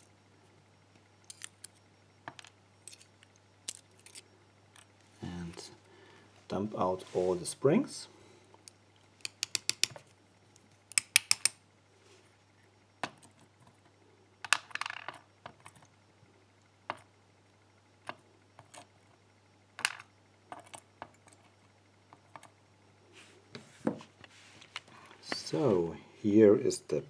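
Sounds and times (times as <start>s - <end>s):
tweezers clicks and rattles: 9.2s - 10.0s.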